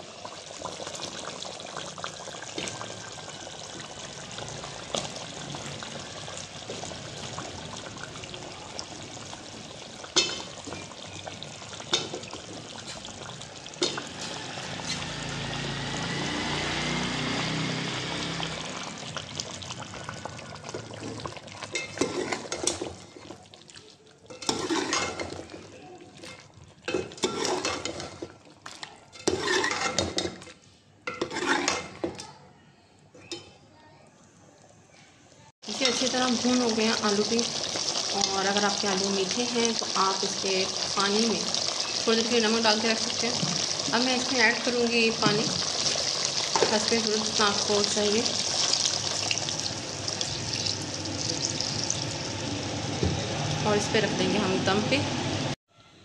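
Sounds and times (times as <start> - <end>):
chicken sizzling in a pot: 0.0 - 32.2, 35.6 - 55.6
ladle clinking against a pot: 10.2 - 11.0
ladle scraping a pot: 21.0 - 23.5, 24.3 - 32.2.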